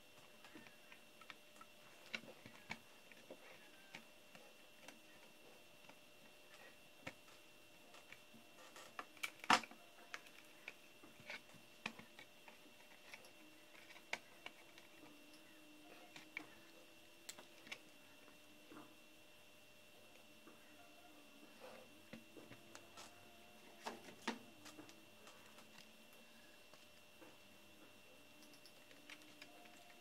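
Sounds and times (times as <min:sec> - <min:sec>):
faint high whine: 0:00.0 - 0:30.0
laptop parts clicking: 0:28.4 - 0:30.0.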